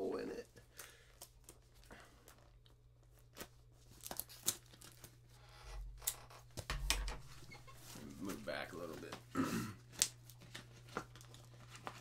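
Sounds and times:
plastic crackles: 0:00.6 - 0:05.4, 0:07.8 - 0:12.0
plastic packaging crinkling and tearing: 0:00.8 - 0:05.3, 0:09.8 - 0:12.0.

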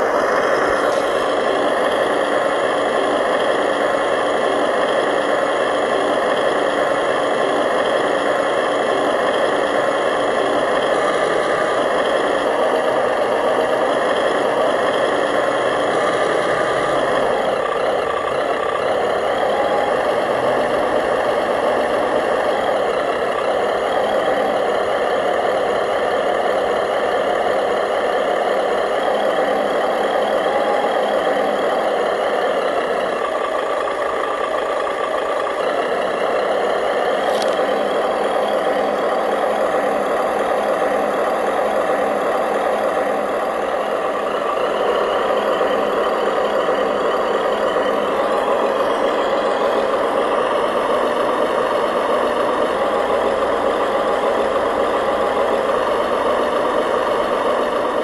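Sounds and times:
small motors droning: 0:00.0 - 0:58.0.

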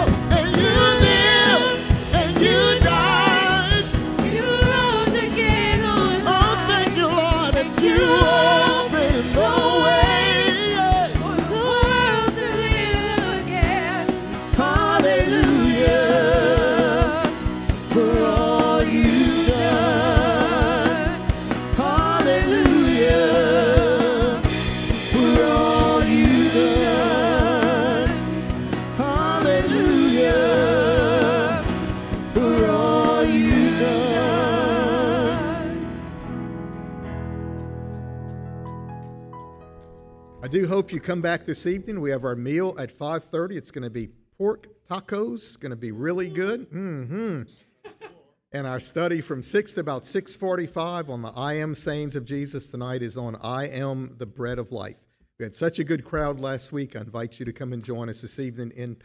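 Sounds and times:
man singing gospel song: 0:00.0 - 0:35.8
instrumental accompaniment: 0:00.0 - 0:41.0.

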